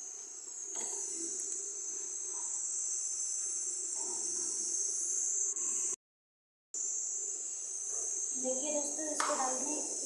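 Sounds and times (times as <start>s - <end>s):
steady high-pitched hiss: 6.8s - 10.0s.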